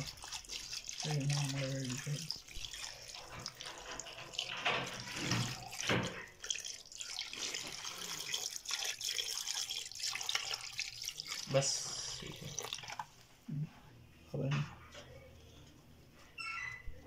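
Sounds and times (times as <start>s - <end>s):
water pouring into a pot: 0.0s - 13.1s.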